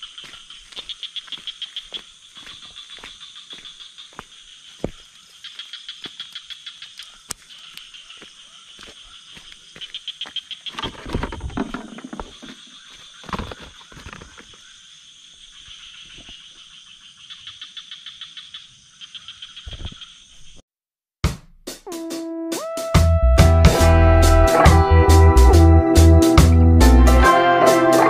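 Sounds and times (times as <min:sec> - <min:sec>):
frogs and insects trilling: 0:00.0 - 0:20.6
rustling and knocks: 0:10.7 - 0:14.6.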